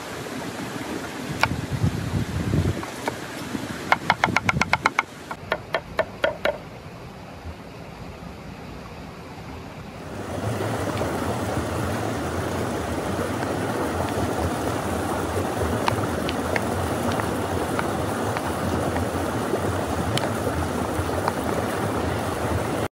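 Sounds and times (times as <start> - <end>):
stream rushing: 0.0 - 22.9
cleaver chopping on wooden board: 3.9 - 6.6.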